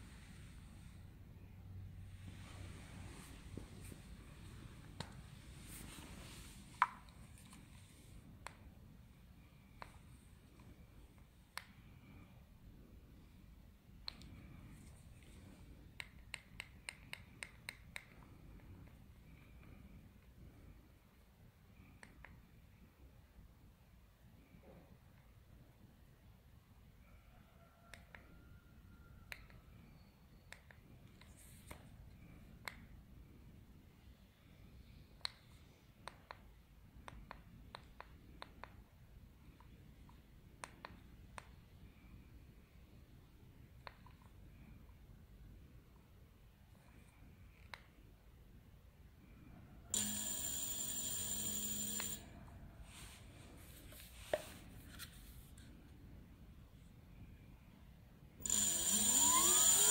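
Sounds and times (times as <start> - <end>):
electric motor whine: 58.4 - 59.9
high-pitched controller tone: 58.4 - 59.9.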